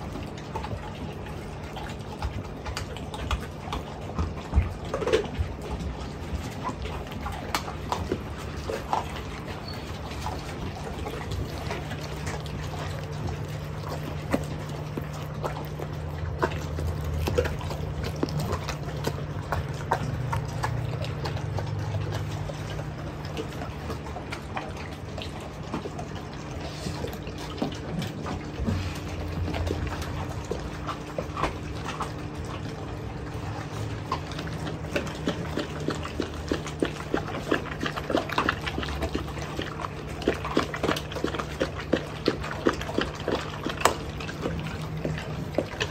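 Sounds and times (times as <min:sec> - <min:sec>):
dogs chewing and slurping: 0:00.0 - 0:45.9
steady low hum: 0:00.0 - 0:45.9
bones crunching: 0:11.2 - 0:21.6.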